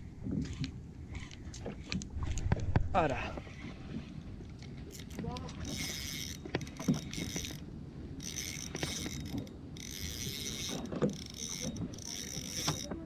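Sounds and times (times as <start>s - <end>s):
fishing reel ratcheting: 4.5s - 13.0s.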